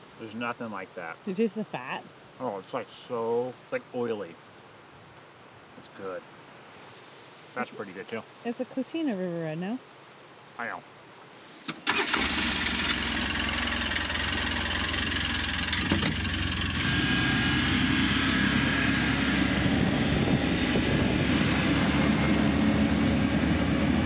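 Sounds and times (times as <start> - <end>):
vehicle engine and road rumble: 11.6 - 24.0.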